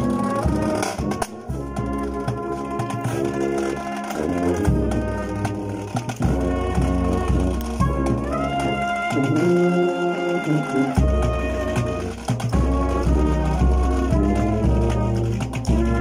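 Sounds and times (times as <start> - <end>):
brass band playing a church tune: 0.0 - 16.0.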